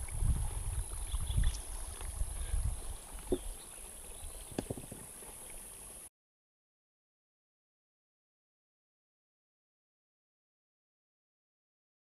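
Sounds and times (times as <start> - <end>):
wind buffeting microphone: 0.0 - 5.2.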